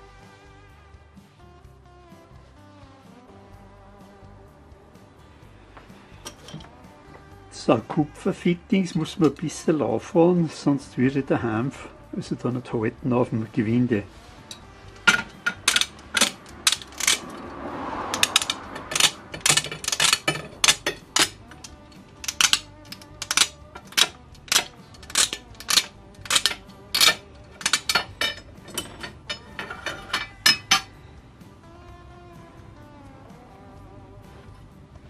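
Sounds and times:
metal blade scraping pipe threads: 6.2s - 6.8s, 14.2s - 17.4s, 18.1s - 30.9s.

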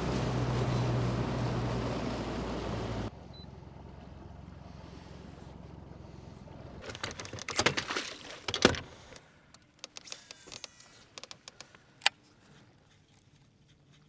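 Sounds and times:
boat motor humming: 0.0s - 7.4s.

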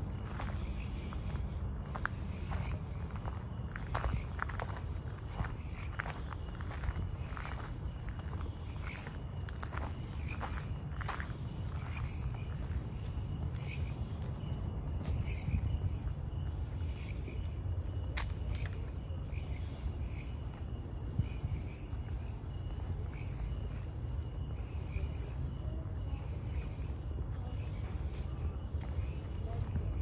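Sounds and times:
insects trilling: 0.0s - 30.0s
footsteps on trail: 0.1s - 15.8s, 27.8s - 30.0s.

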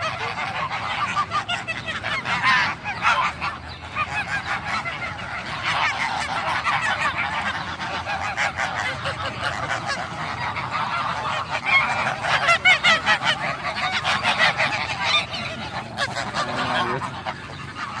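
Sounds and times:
geese honking: 0.0s - 18.0s.

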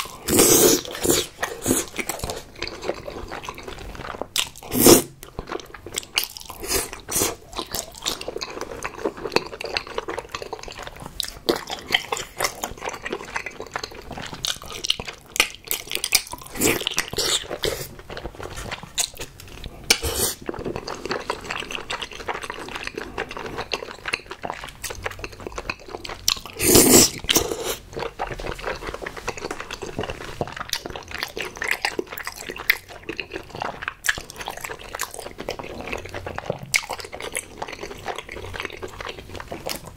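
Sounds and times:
slurping: 0.0s - 5.2s, 19.9s - 23.0s, 26.5s - 38.6s
wet sticky chewing: 0.0s - 39.9s.

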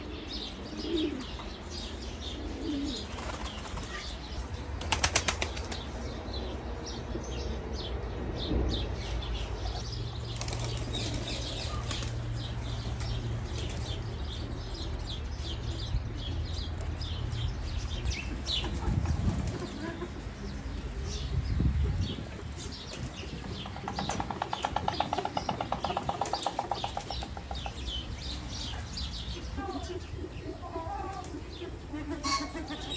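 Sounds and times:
birds chirping: 0.0s - 32.9s
pigeon wings flapping: 4.8s - 5.8s.

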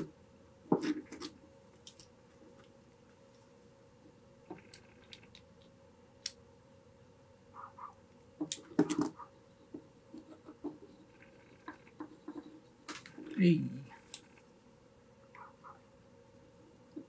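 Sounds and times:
wooden sticks clicking and knocking: 0.0s - 3.5s, 8.4s - 11.0s.

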